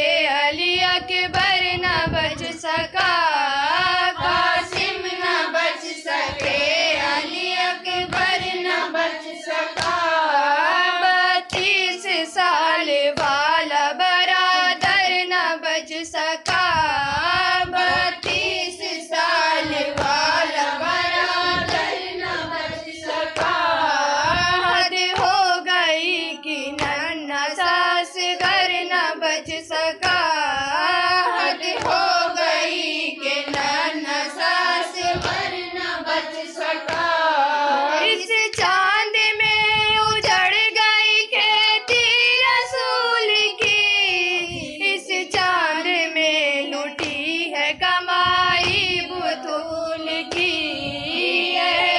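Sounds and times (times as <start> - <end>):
rhythmic chest-beating strikes: 0.0 - 12.5, 16.0 - 39.0, 47.0 - 51.9
woman chanting: 0.0 - 51.9.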